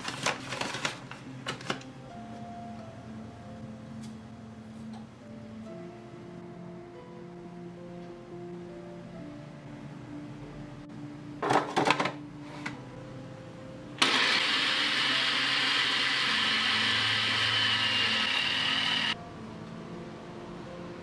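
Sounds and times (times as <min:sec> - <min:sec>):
food processor running: 0:14.0 - 0:19.2.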